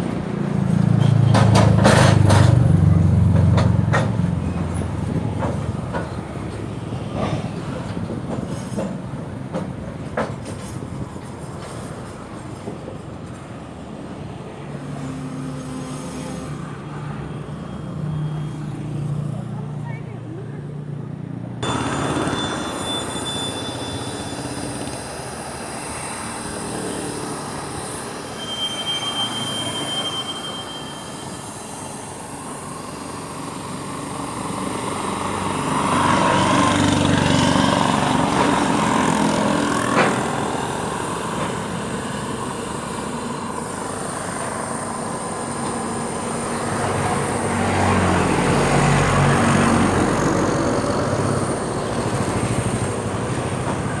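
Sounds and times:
freight train wagons rolling: 0.5 - 13.7, 33.3 - 54.0.

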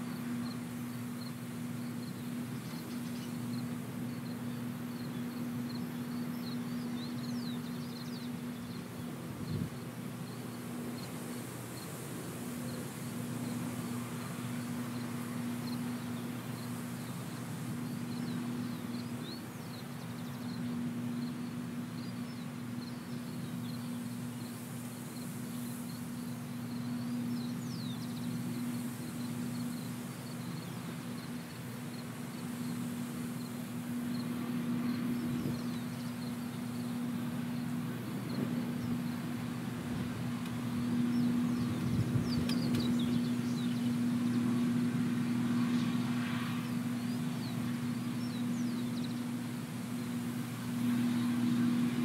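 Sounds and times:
combine harvester engine hum: 0.0 - 52.0.

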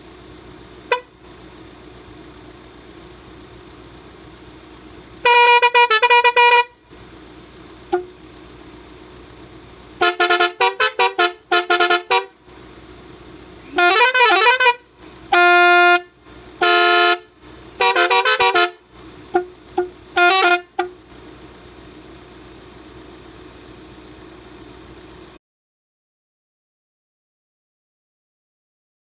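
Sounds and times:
car engine idling: 0.0 - 25.4
musical air horn blasts: 0.9 - 1.2, 5.2 - 6.8, 10.0 - 12.4, 13.6 - 21.0.

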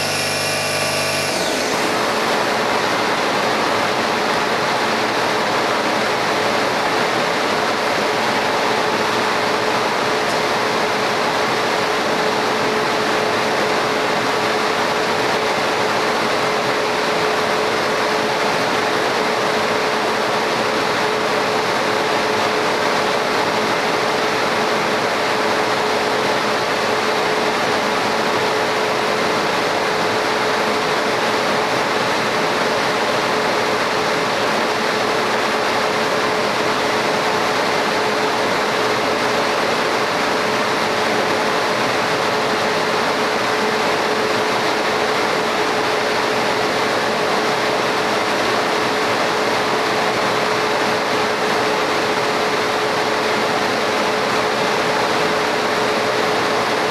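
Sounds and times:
laser cutting machine rushing hum: 0.0 - 4.9.

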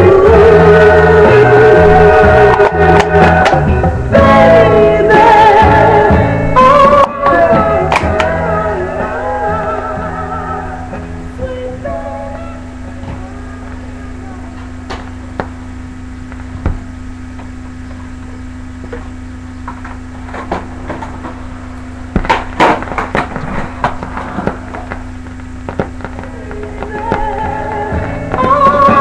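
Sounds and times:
turntable hum: 0.0 - 29.0
tonearm knocks and stylus crackle: 14.9 - 15.6, 22.1 - 29.0.

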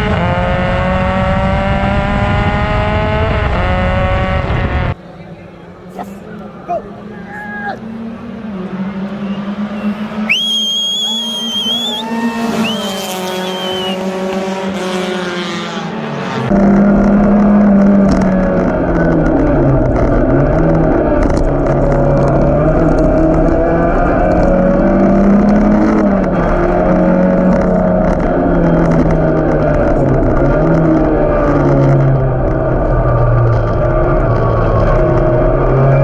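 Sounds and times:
race car engine revving: 0.0 - 36.0
whistle blasts: 9.2 - 14.2.

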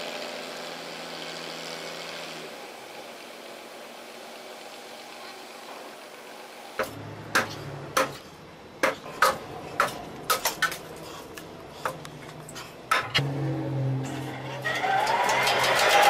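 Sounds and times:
lathe drive hum: 0.0 - 8.8.

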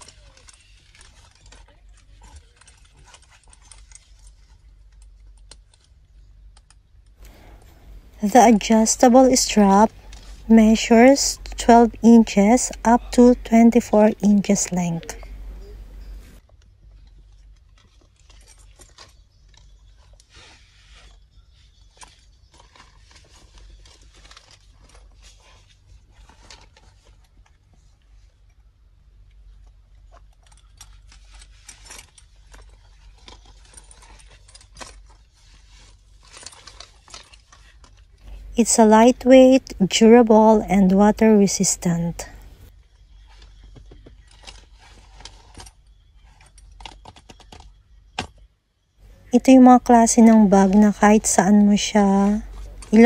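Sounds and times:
nylon bag strap rustling: 0.0 - 6.3, 17.0 - 28.2, 30.0 - 38.5, 42.4 - 47.7
low steady hum: 0.0 - 53.0
fabric rustling: 7.2 - 16.4, 17.0 - 28.4, 50.0 - 53.0.

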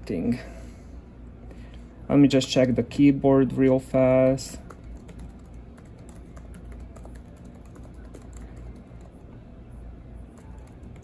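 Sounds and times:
fast keyboard typing: 4.6 - 9.2, 10.4 - 11.0.

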